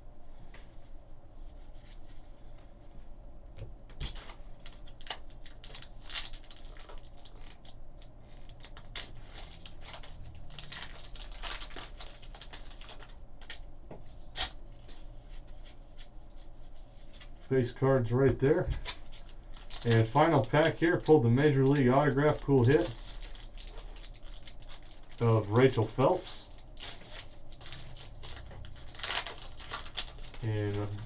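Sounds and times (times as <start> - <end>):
wrapper tearing and crinkling: 4.0 - 13.6, 18.8 - 31.0.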